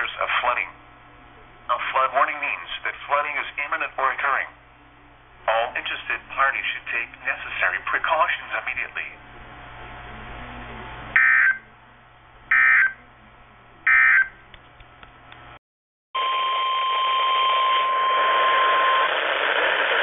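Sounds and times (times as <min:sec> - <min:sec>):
radio static: 0:05.5 - 0:09.2
weather radio alarm tone: 0:11.1 - 0:11.8, 0:12.5 - 0:13.1, 0:13.8 - 0:14.4, 0:16.2 - 0:19.2.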